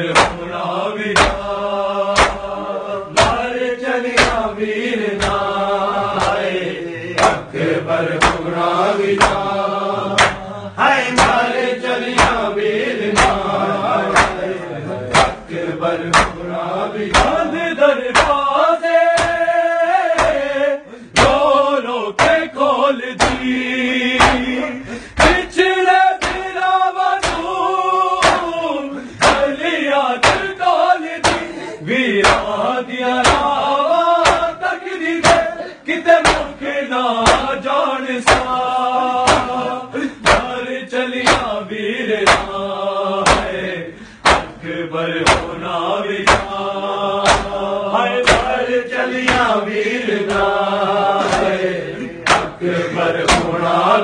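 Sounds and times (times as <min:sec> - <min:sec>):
men chanting a lament: 0:00.0 - 0:54.0
hands slapping chests: 0:00.1 - 0:18.5, 0:19.1 - 0:19.5, 0:20.1 - 0:20.5, 0:21.1 - 0:21.5, 0:22.2 - 0:22.5, 0:23.2 - 0:23.6, 0:24.2 - 0:25.6, 0:26.2 - 0:29.6, 0:30.2 - 0:31.6, 0:32.2 - 0:32.6, 0:33.2 - 0:33.6, 0:34.2 - 0:35.6, 0:36.2 - 0:36.6, 0:37.2 - 0:37.6, 0:38.2 - 0:38.6, 0:39.2 - 0:40.6, 0:41.2 - 0:41.6, 0:42.2 - 0:42.6, 0:43.2 - 0:46.6, 0:47.2 - 0:50.6, 0:51.2 - 0:53.7.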